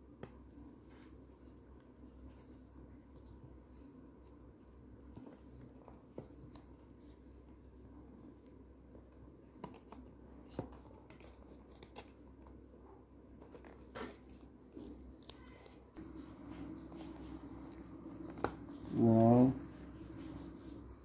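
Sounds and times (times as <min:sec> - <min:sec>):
low steady hum: 0:14.4 - 0:21.0.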